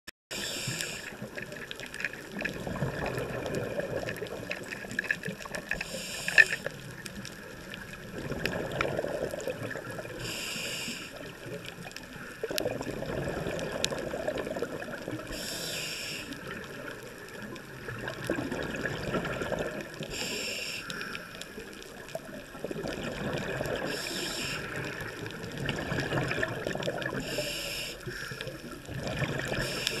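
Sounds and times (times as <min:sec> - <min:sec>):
regulator inhale hiss: 0:00.3 - 0:01.3, 0:05.7 - 0:06.7, 0:10.1 - 0:11.3, 0:15.3 - 0:16.5, 0:20.0 - 0:21.6, 0:23.8 - 0:25.0, 0:27.2 - 0:28.7, 0:29.5 - 0:30.0
gurgling exhaled bubbles: 0:00.3 - 0:20.5, 0:21.4 - 0:27.7, 0:28.4 - 0:30.0.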